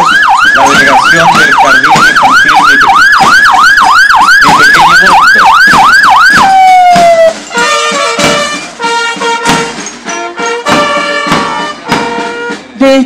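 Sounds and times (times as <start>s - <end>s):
fire engine siren wailing: 0.0s - 9.7s
marching band brass and drums: 0.0s - 13.0s.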